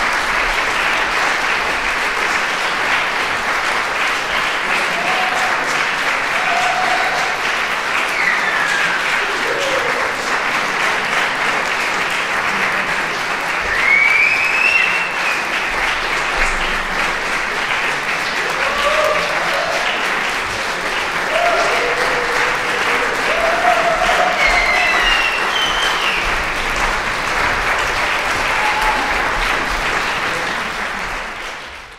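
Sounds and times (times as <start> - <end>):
audience applauding: 0.0 - 31.9
voices calling out and cheering: 4.8 - 10.3, 21.2 - 26.2.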